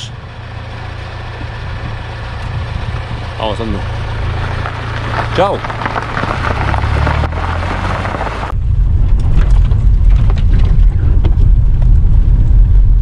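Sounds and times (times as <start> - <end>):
car driving rumble: 0.0 - 13.0
car engine running: 0.0 - 13.0
wind on the microphone: 8.5 - 13.0.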